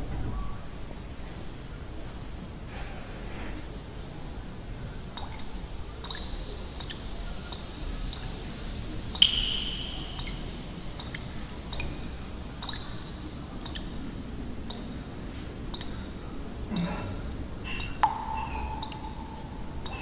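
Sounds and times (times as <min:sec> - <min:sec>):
faucet dripping: 0:05.2 - 0:20.0
ringing plink of falling drop: 0:09.2 - 0:11.2.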